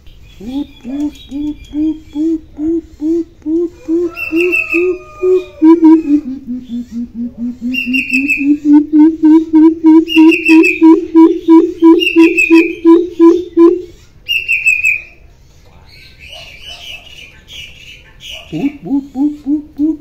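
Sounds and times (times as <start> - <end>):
bird deep hoots: 0.4 - 14.0, 18.5 - 20.0.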